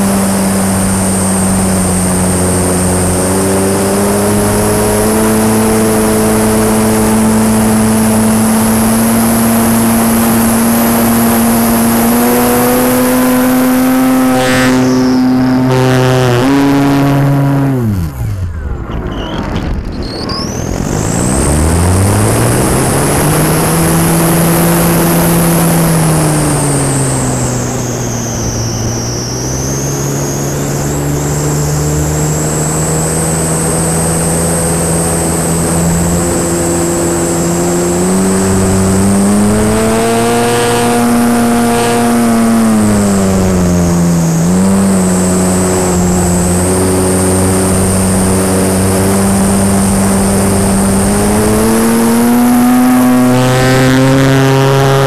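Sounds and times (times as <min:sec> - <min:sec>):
model plane motor and propeller: 0:00.0 - 0:16.6, 0:17.7 - 0:55.0
high thin whine: 0:00.0 - 0:55.0.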